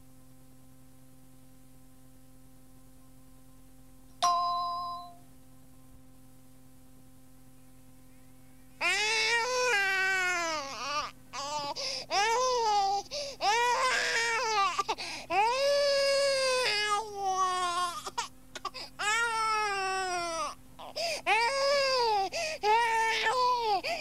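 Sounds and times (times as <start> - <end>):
faint tape hum: 0.0 - 24.0
wailing cries: 8.8 - 24.0.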